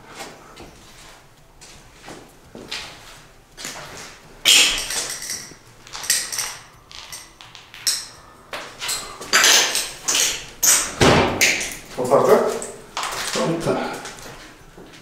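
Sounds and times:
shards clinking: 4.5s - 8.2s, 8.8s - 11.9s
footsteps crunching on broken tiles: 8.6s - 15.0s.

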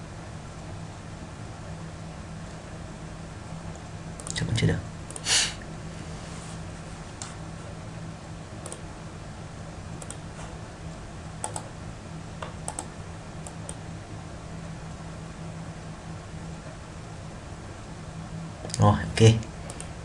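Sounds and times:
low electrical hum: 0.0s - 20.0s
computer mouse clicks: 3.7s - 4.4s, 8.6s - 8.8s, 10.0s - 10.2s, 11.4s - 11.7s, 12.4s - 13.8s.

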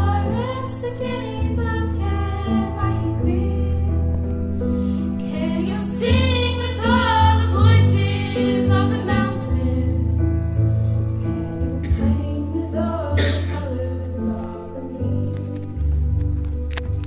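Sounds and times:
instrumental accompaniment: 0.0s - 17.0s
woman singing into microphone: 11.5s - 15.7s.

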